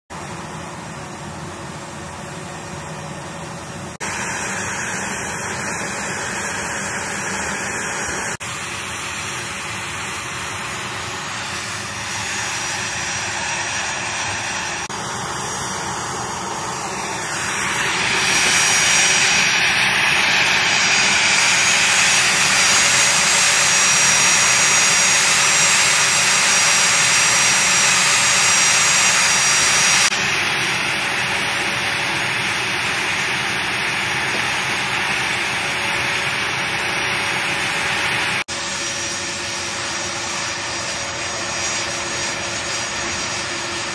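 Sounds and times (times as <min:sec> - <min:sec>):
jet engines running: 0:00.1 - 0:43.9.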